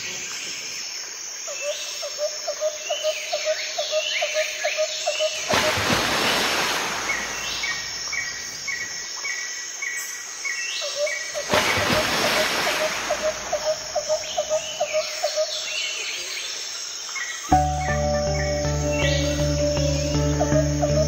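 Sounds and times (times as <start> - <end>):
insects chirping: 0.0 - 21.0
birds calling: 11.0 - 15.8.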